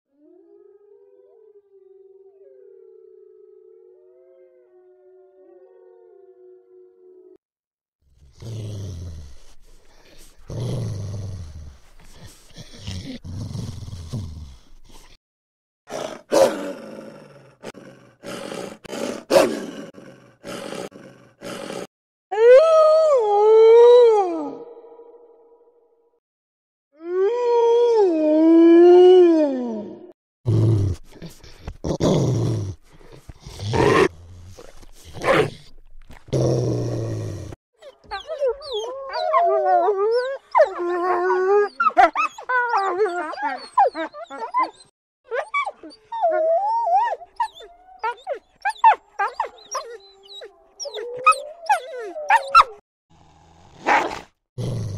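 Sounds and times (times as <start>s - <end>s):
dog growling and snarling: 8.2s - 15.2s, 15.9s - 21.9s, 30.5s - 44.7s, 45.8s - 54.9s
wolf growling: 30.5s - 44.9s
dog whining and whimpering: 37.8s - 52.8s.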